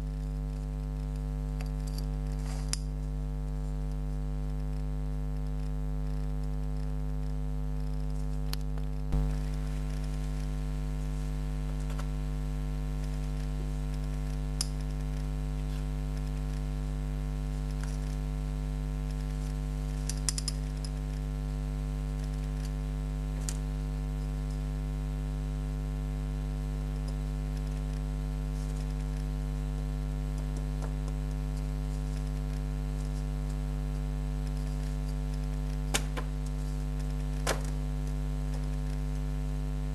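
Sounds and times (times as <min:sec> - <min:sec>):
low electrical hum: 0:00.0 - 0:39.9
geiger counter clicking: 0:13.0 - 0:24.6.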